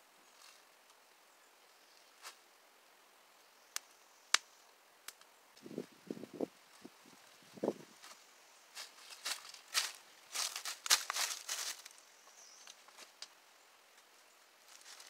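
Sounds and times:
footsteps crunching dry leaves: 6.7 - 13.2, 14.6 - 15.0.

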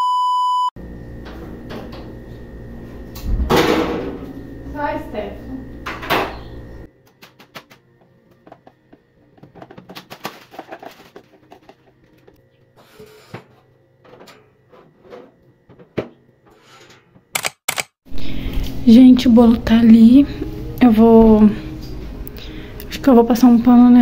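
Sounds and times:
kitchen items clicking and knocking: 8.5 - 12.4.

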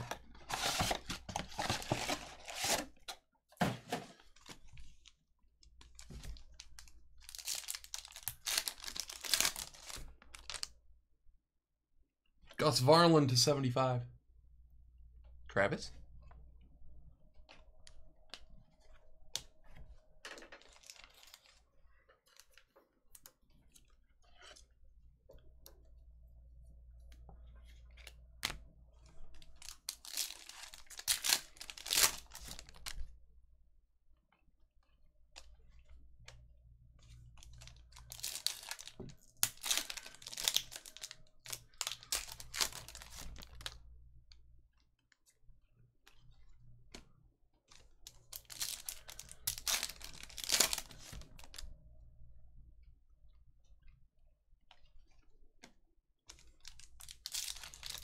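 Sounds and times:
foil wrapper crinkling: 6.0 - 10.7, 29.5 - 33.0, 37.4 - 43.8, 48.2 - 51.6, 56.3 - 58.0.

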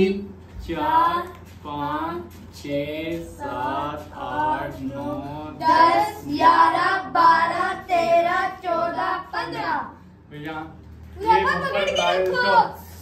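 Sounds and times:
children chanting: 3.4 - 10.0.

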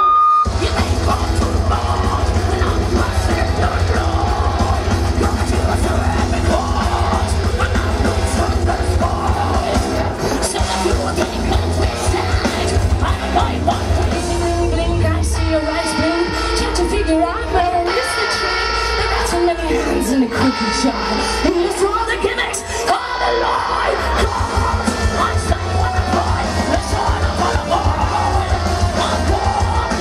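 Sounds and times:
distorted electric guitars: 0.0 - 30.0
heavy bass: 0.0 - 30.0
pounding drums: 0.5 - 14.5, 24.2 - 30.0
screamed vocals: 17.9 - 30.0.

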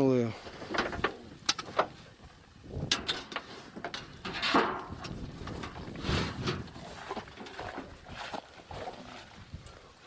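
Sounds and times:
metal cans knocking and scraping: 2.9 - 7.9.

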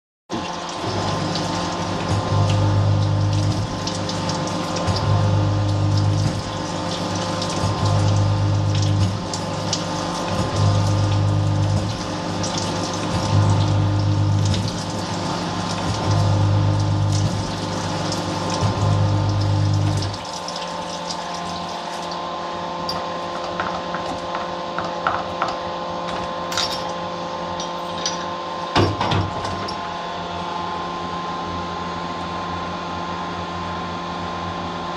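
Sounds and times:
honing oil washing: 0.3 - 30.1
machine hum: 0.3 - 34.9.

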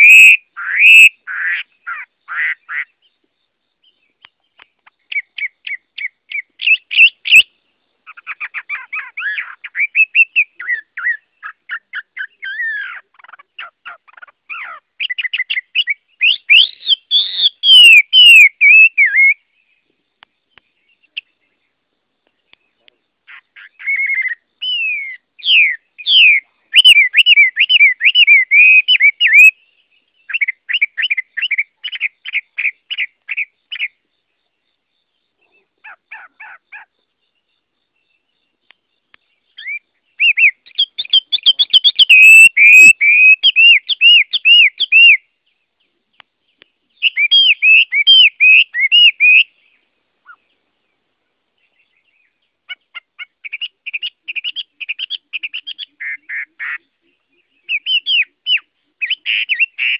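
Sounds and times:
bird singing whistled phrases: 0.0 - 2.0, 5.1 - 7.5, 8.1 - 19.5, 23.3 - 29.6, 30.2 - 34.0, 39.5 - 45.3, 47.0 - 49.6, 57.4 - 59.9.

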